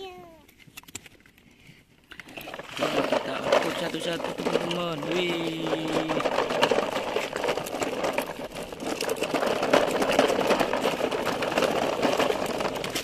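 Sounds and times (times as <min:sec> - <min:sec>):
plastic toys rattling: 0:00.0 - 0:01.4, 0:02.1 - 0:13.0
plastic wheels crunching on gravel: 0:02.1 - 0:13.0.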